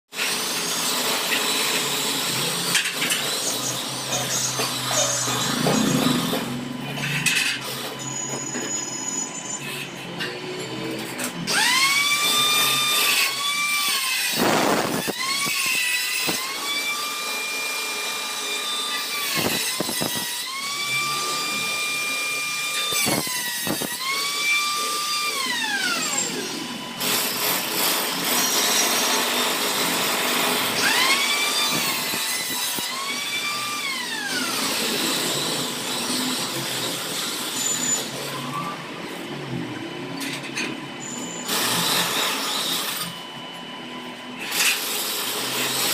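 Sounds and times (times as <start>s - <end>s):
angle grinder motor whining: 0.2s - 45.9s
grinding disc against steel: 0.7s - 11.9s.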